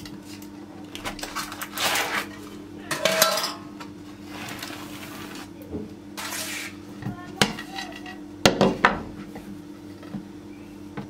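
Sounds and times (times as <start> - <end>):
baking paper rustling: 0.2 - 2.6, 4.1 - 5.6, 6.2 - 6.8
ceramic plates clinking: 2.9 - 3.7.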